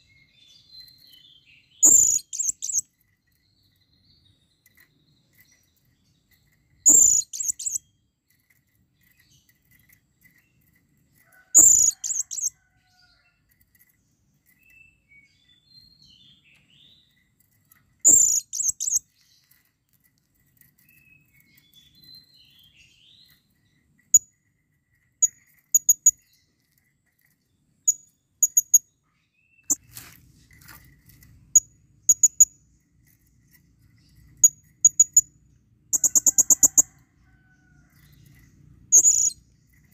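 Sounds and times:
parrot sharp chirps: 0:01.8 - 0:02.8, 0:06.8 - 0:07.8.

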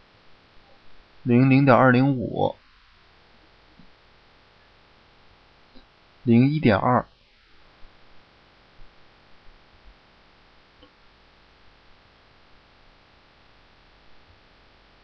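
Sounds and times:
faint hum and hiss: 0:00.0 - 0:15.0.

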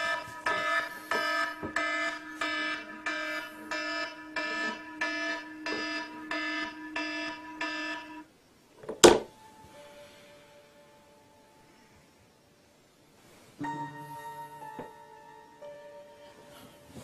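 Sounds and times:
electronic alarm beeping: 0:00.0 - 0:08.3.

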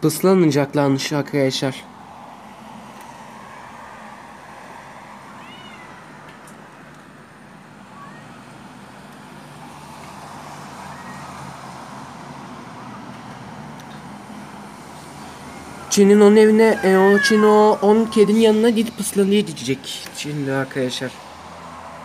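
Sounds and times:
steady background noise: 0:00.0 - 0:22.0
cats meowing: 0:05.2 - 0:06.2, 0:07.9 - 0:08.5, 0:10.8 - 0:11.5, 0:16.2 - 0:20.4.

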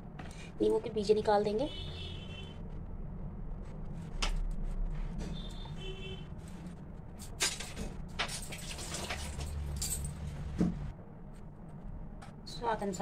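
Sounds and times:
steady low hum: 0:00.0 - 0:08.2.

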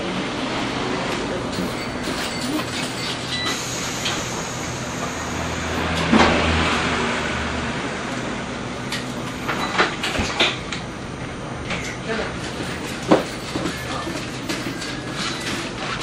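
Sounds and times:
trolleybus interior hum and rumble: 0:00.0 - 0:16.0.

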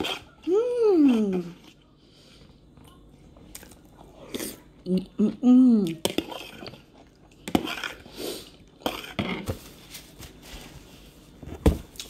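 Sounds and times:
person chewing food: 0:00.0 - 0:05.1, 0:05.8 - 0:09.4.

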